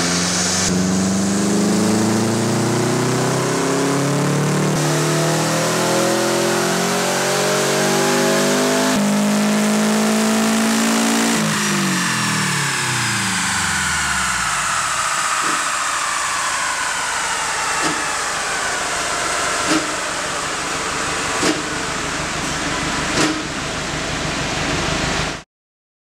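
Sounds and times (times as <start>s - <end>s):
dyno rollers whine falling in pitch: 0.0s - 25.4s
sharp pops: 19.6s - 20.1s, 21.4s - 21.8s.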